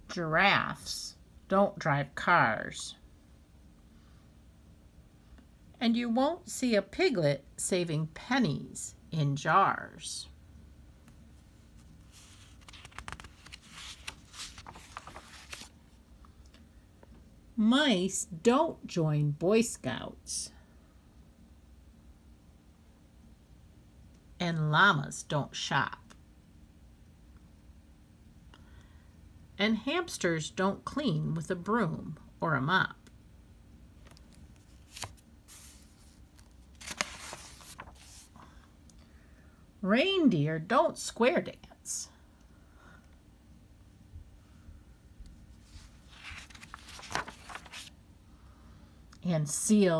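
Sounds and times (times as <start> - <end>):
book pages turning: 11.6 - 16.0, 34.0 - 38.4, 45.6 - 48.0.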